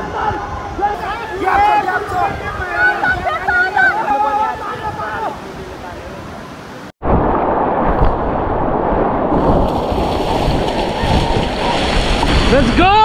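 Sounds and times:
river rapids rushing: 0:00.0 - 0:06.9, 0:09.4 - 0:13.0
deep water rumble: 0:07.0 - 0:13.0.

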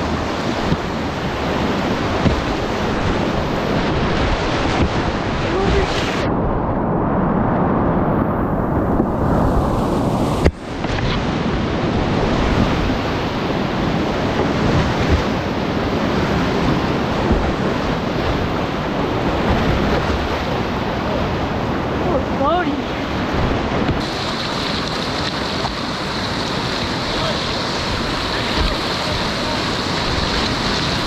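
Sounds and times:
whitewater rushing: 0:00.0 - 0:06.3, 0:09.4 - 0:31.0.

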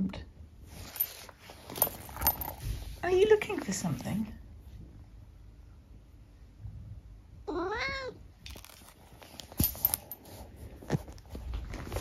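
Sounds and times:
rustling: 0:00.6 - 0:04.3, 0:08.4 - 0:12.0
cat meowing: 0:07.4 - 0:08.2.

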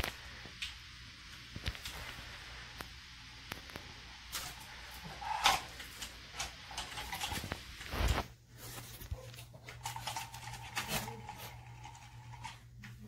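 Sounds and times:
toy motor whirring: 0:09.7 - 0:12.6.

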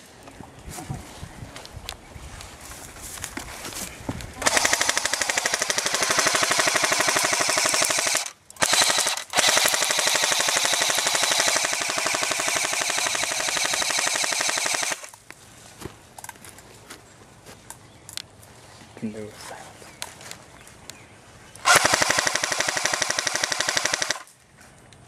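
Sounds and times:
airsoft rifle automatic fire: 0:04.4 - 0:15.1, 0:21.6 - 0:24.3.

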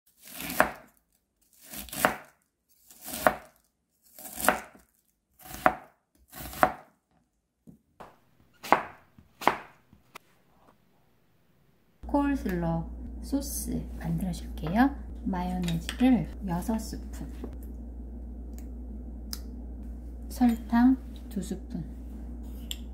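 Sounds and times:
knife slicing vegetables: 0:00.1 - 0:06.9, 0:08.6 - 0:09.8.

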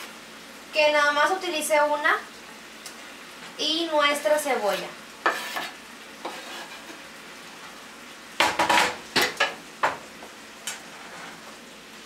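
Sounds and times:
food sizzling in a skillet: 0:00.0 - 0:12.0
spatula scraping a pan: 0:04.3 - 0:07.1, 0:10.7 - 0:11.6.

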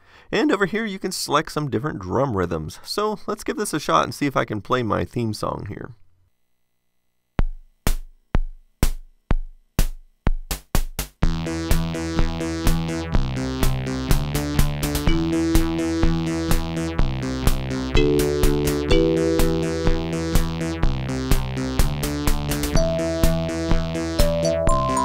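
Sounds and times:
drum machine hits: 0:07.4 - 0:11.9, 0:13.6 - 0:25.0
synth chords and bass: 0:11.3 - 0:25.0.

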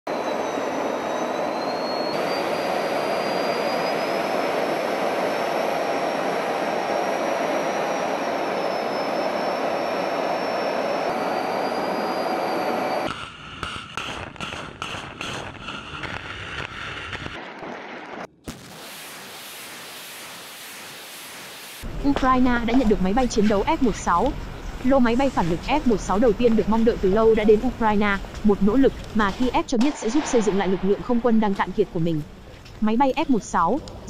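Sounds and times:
jet aircraft noise: 0:00.1 - 0:13.1, 0:16.6 - 0:34.0
rocket launch blasts: 0:18.4 - 0:21.4, 0:29.8 - 0:31.4.

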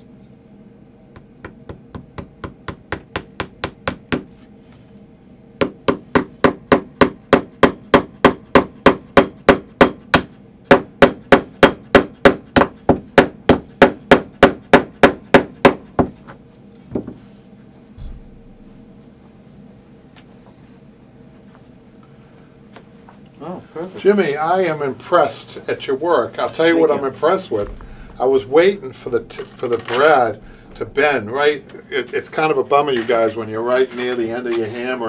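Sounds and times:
tack hammer striking: 0:01.1 - 0:04.3, 0:05.6 - 0:16.1.

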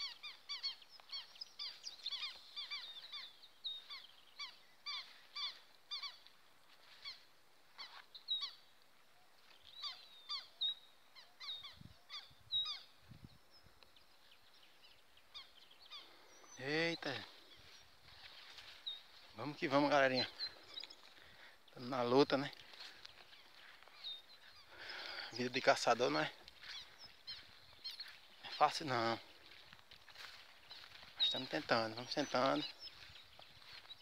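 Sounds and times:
ducks calling: 0:00.0 - 0:07.2, 0:15.2 - 0:34.0.

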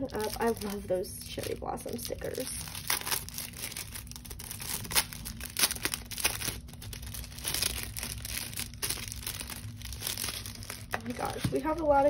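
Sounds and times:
paper crackles: 0:00.0 - 0:12.0
paper packaging rustling: 0:00.0 - 0:12.0.

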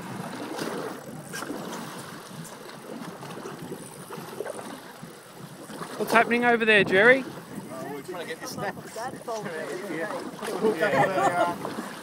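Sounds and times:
water slapping against boat hull: 0:00.0 - 0:12.0
wind noise: 0:05.4 - 0:09.8.

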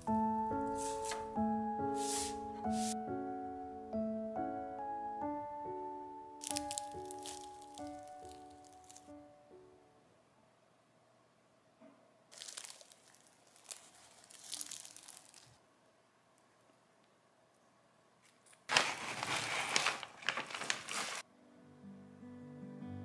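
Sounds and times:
croissant crust crackling as torn: 0:06.4 - 0:09.1, 0:12.3 - 0:15.6, 0:18.7 - 0:21.2.

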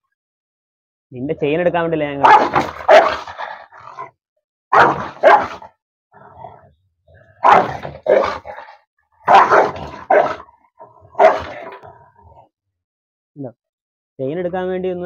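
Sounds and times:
dog barking loudly: 0:02.2 - 0:04.1, 0:04.7 - 0:05.8, 0:07.2 - 0:11.9.

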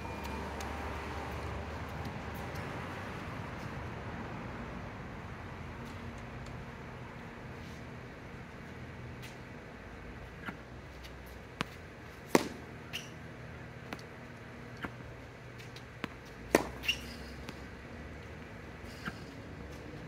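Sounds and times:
tennis balls bouncing on court: 0:10.4 - 0:18.4
racket hitting tennis ball: 0:11.3 - 0:13.2, 0:14.8 - 0:15.0, 0:15.6 - 0:17.8.

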